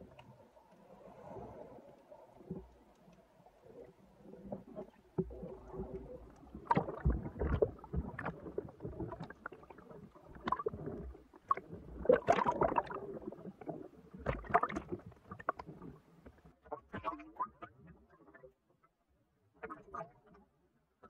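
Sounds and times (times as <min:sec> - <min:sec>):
water splashing and sloshing: 0:00.0 - 0:17.8.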